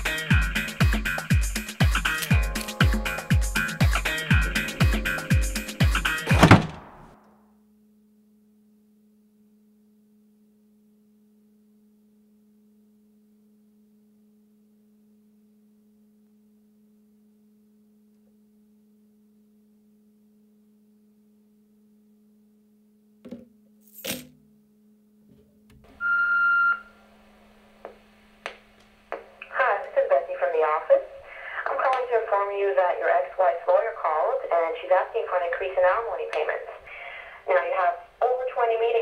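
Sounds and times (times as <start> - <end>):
low electrical hum: 6.8 - 39.0.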